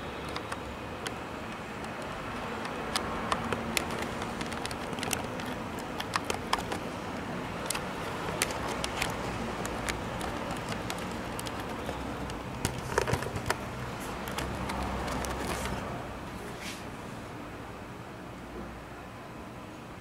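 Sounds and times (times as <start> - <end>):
sharp clicks and taps: 0.0 - 15.9
distant traffic: 0.0 - 20.0.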